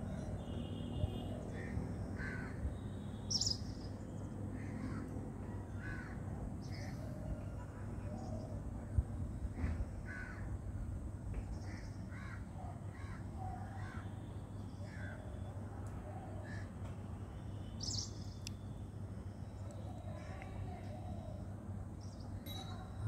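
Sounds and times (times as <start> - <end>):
crows cawing: 1.6 - 2.6, 4.6 - 5.1, 5.8 - 6.2, 10.0 - 10.5, 11.7 - 14.1.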